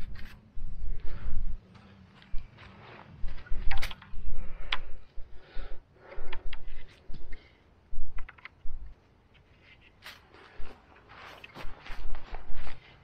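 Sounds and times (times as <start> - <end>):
rustling: 0.0 - 13.0
small clicks and knocks: 3.3 - 5.1, 8.1 - 10.3.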